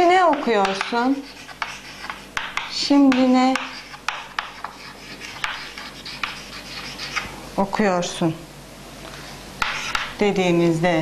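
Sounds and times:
chalk scratching on chalkboard: 0:00.3 - 0:07.3, 0:09.6 - 0:10.2.

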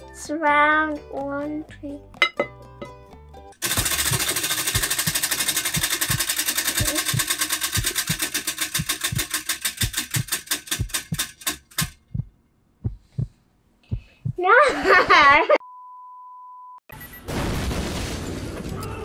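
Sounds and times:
prize wheel pointer clicking: 0:03.6 - 0:12.0.

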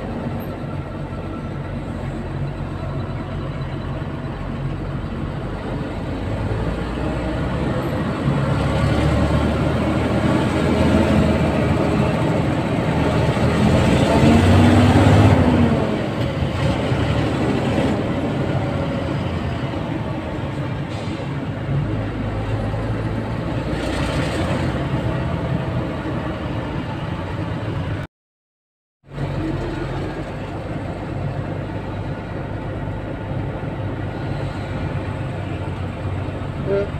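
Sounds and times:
vehicle engine and road noise: 0:00.0 - 0:28.1, 0:29.0 - 0:36.9.

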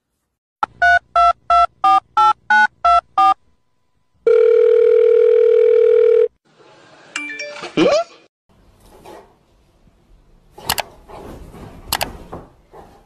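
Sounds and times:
telephone ringing tone: 0:04.2 - 0:06.4.

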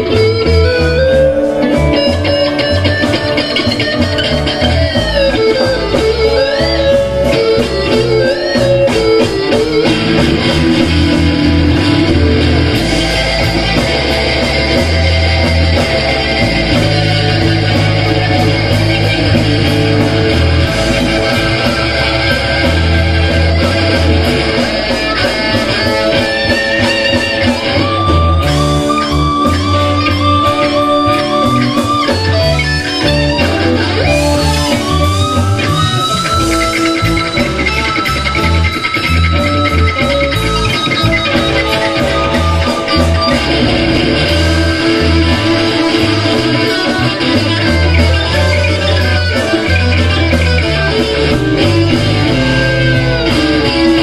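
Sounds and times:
lead guitar wavering notes: 0:00.0 - 0:54.0
rock blues band jamming: 0:00.0 - 0:54.0.

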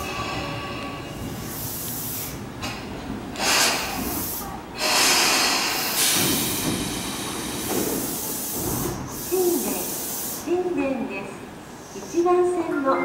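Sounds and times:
compressed air hissing: 0:01.4 - 0:02.8, 0:03.4 - 0:10.5.

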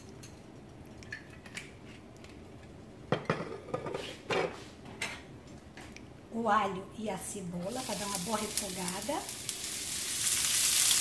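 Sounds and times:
kitchenware clinking and knocking: 0:03.1 - 0:05.2.

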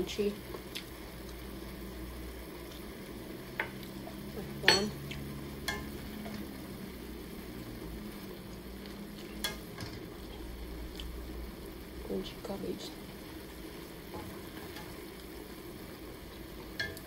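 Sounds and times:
cabbage sizzling in a pan: 0:00.0 - 0:17.0.

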